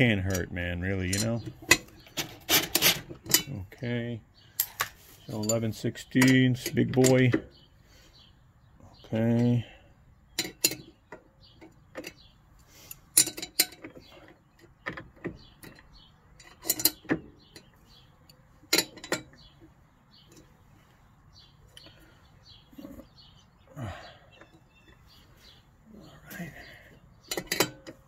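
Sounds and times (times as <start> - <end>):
metal wrench clicking on bolts: 12.9 - 14.0, 27.2 - 28.0.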